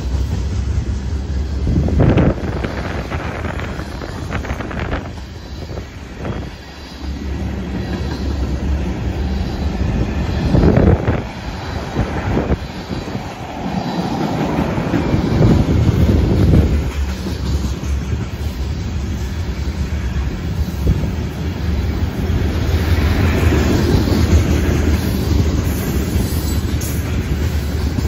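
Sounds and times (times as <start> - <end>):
freight train rumbling past: 0.0 - 28.0.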